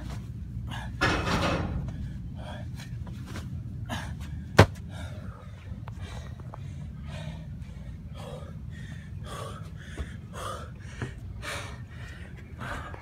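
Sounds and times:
heavy rapid panting: 0:06.0 - 0:13.0.

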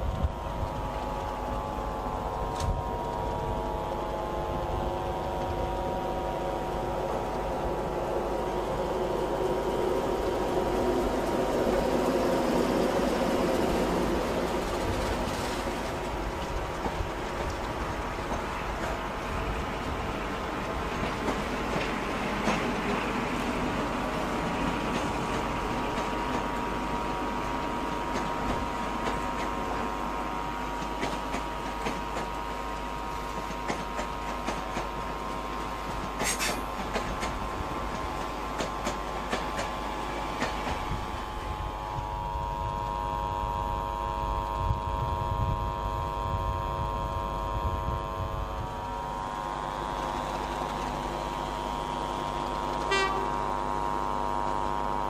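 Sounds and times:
train engine drone: 0:00.0 - 0:55.0
train wheels clicking over rail joints: 0:04.7 - 0:30.0, 0:30.6 - 0:41.4.

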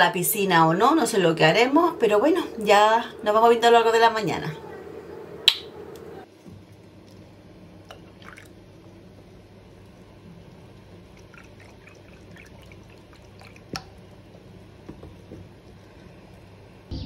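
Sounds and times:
faint steady hum: 0:00.0 - 0:17.0
milk pouring into a mug: 0:07.9 - 0:08.6, 0:11.1 - 0:14.1.

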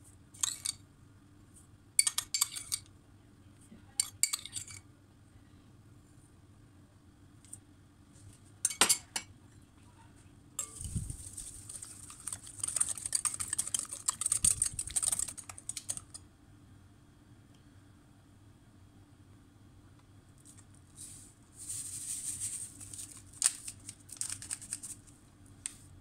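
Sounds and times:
metal spoon clinking on glass: 0:02.0 - 0:02.9, 0:04.0 - 0:04.8, 0:08.6 - 0:09.3, 0:10.6 - 0:11.0.

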